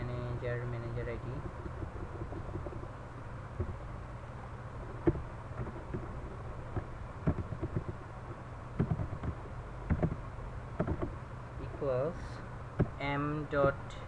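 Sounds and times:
steady low hum: 0.0s - 14.0s
keyboard keys clicking: 6.8s - 8.0s, 8.8s - 10.2s, 10.8s - 11.1s.

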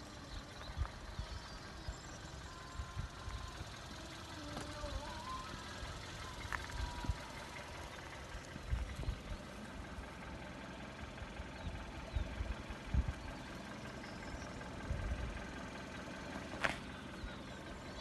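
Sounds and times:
wind rumbling on microphone: 12.2s - 13.3s.

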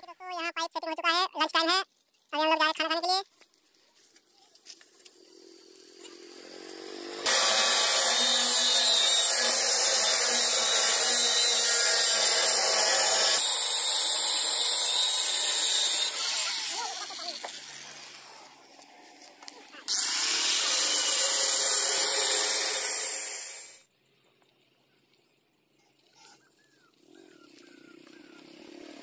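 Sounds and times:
angle grinder cutting steel: 5.3s - 18.9s, 19.5s - 23.8s.

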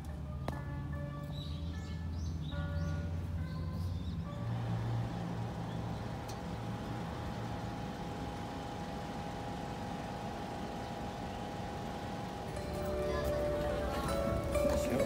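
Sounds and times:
road noise: 0.0s - 15.0s
car engine: 3.2s - 15.0s.

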